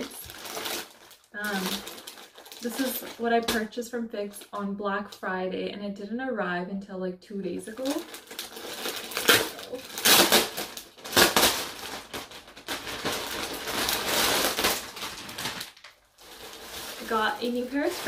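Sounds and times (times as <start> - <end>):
plastic mailer bag crinkling: 0.0 - 4.6, 7.7 - 18.0
sharp plastic crackles: 0.0 - 5.2, 7.7 - 18.0.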